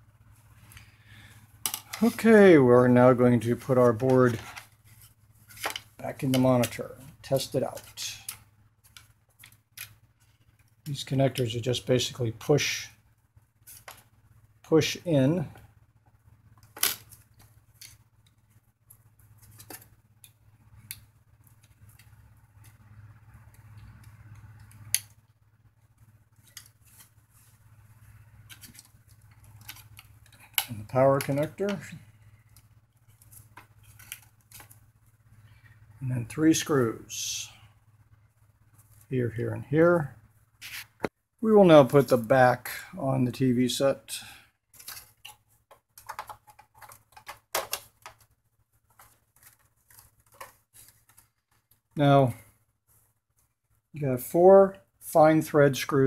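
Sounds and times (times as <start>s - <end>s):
plastic clacks and knocks: 45.2s - 48.3s.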